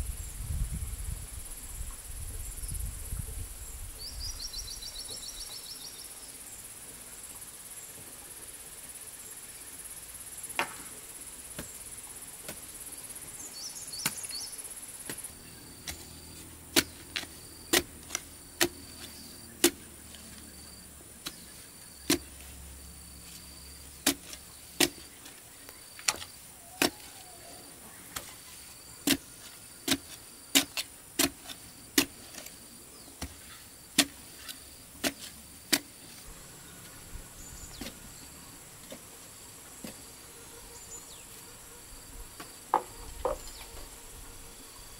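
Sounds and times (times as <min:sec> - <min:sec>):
high insect buzz: 0:00.0 - 0:44.9
digging tool striking hard soil: 0:14.0 - 0:14.4, 0:15.1 - 0:19.9, 0:21.2 - 0:22.5, 0:24.0 - 0:25.2, 0:26.0 - 0:27.2, 0:29.0 - 0:32.5, 0:33.2 - 0:36.0.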